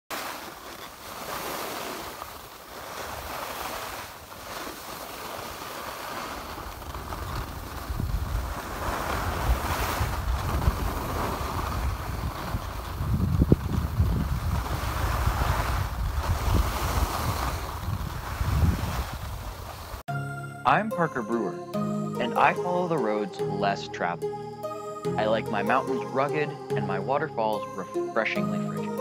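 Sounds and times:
skis scraping over snow: 0.1s - 20.0s
wind buffeting microphone: 6.6s - 20.0s.

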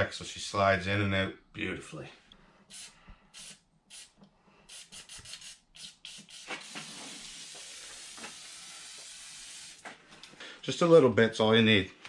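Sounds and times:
aerosol can spraying: 2.7s - 9.9s.

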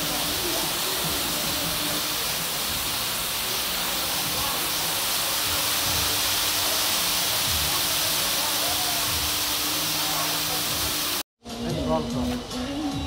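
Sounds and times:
water pouring and splashing: 0.0s - 11.2s.

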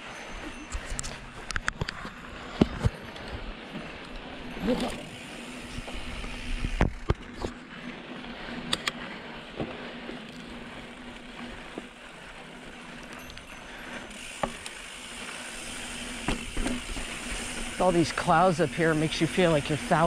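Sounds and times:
bike tyres rolling on rocky trail: 0.0s - 20.0s
bike clunks and rattles: 12.8s - 20.0s.

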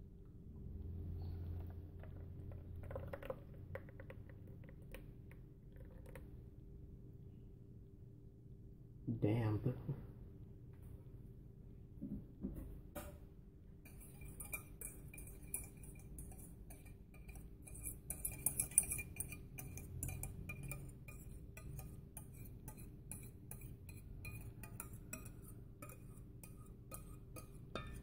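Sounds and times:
thick soup pouring: 1.3s - 6.4s
utensil clinking on glass bowl: 13.9s - 28.0s.

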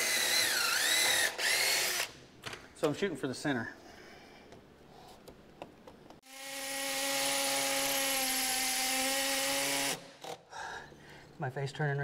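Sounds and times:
cordless drill boring: 0.0s - 2.1s, 6.2s - 10.4s.

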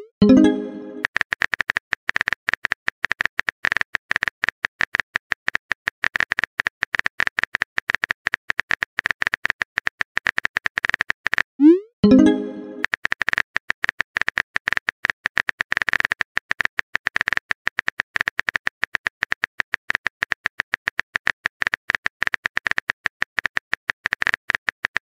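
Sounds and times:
typing click sound effects: 0.0s - 1.1s, 11.6s - 12.9s.

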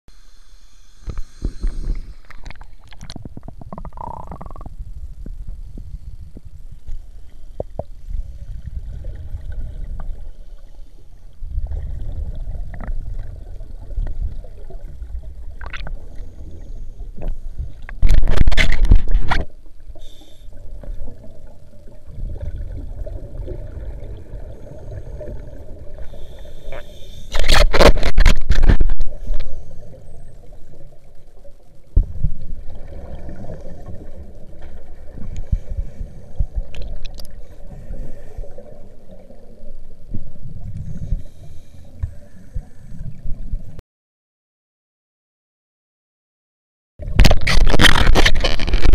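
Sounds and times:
low rumbling water: 1.5s - 43.8s
rush of exhaled bubbles: 7.6s - 10.4s, 11.4s - 16.8s, 20.6s - 26.4s, 32.0s - 39.7s
handling noise with clicks: 36.6s - 37.4s.

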